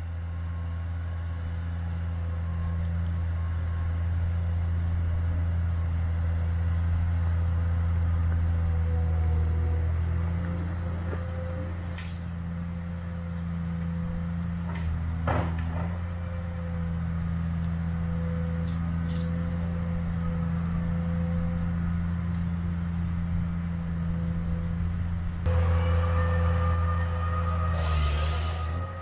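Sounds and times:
diesel engine humming: 0.0s - 29.0s
knocks of wood and machinery: 11.0s - 16.2s
hydraulic whine: 23.8s - 29.0s.

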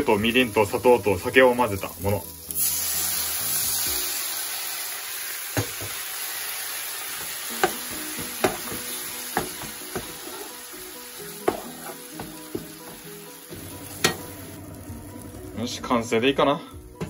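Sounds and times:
sauce sizzling in frying pan: 0.0s - 16.2s
wooden spatula knocking pan: 7.2s - 10.4s, 11.4s - 14.3s.

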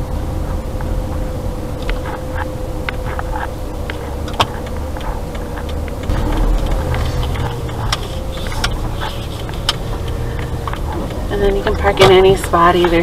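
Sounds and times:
car engine and tyres rumbling: 0.0s - 13.0s.

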